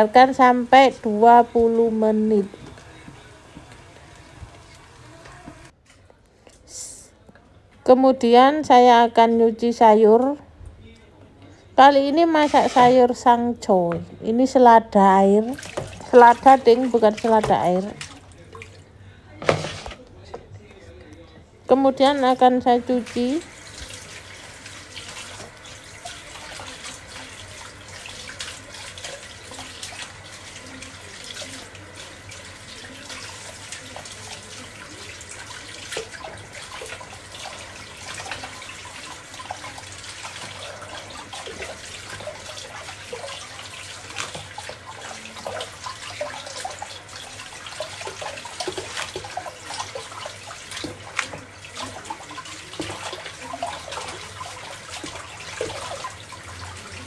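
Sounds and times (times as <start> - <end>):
tap running into sink: 19.4 - 20.4.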